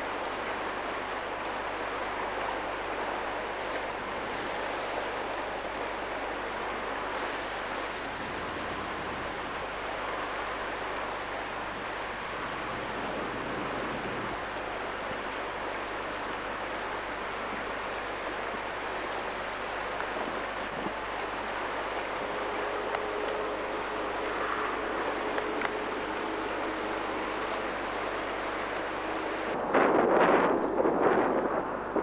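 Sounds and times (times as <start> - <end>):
river water rushing: 0.0 - 32.0.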